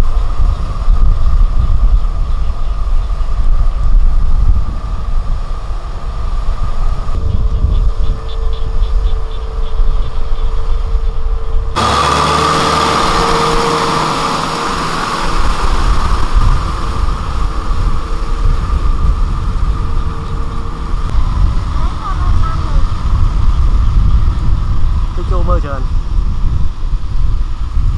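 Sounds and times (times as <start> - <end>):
rotavator tilling muddy soil: 0.0 - 25.8
tractor diesel engine under load: 11.6 - 27.9.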